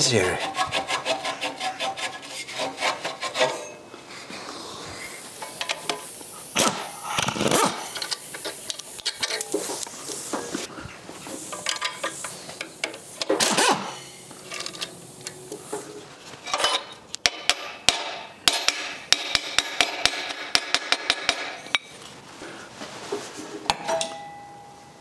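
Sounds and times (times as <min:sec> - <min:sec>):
metal tool scraping rattle: 0:00.4 - 0:03.8
sharp metallic knocks on pipe: 0:17.2 - 0:21.6.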